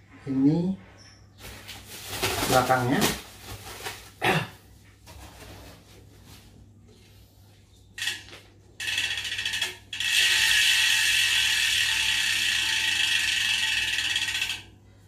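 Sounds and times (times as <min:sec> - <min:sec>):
bicycle hub ratcheting: 0:08.0 - 0:14.7.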